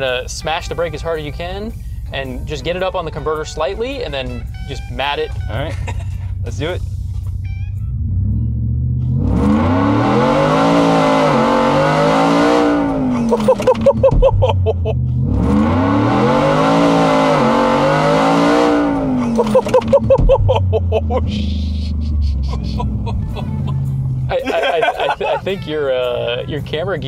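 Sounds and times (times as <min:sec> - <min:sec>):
truck engine revving at full throttle: 0:05.5 - 0:25.6.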